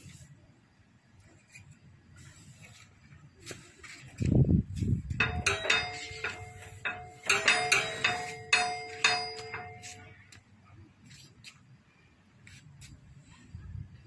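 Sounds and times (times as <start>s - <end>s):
sharp metallic strikes ringing: 5.2s - 10.2s.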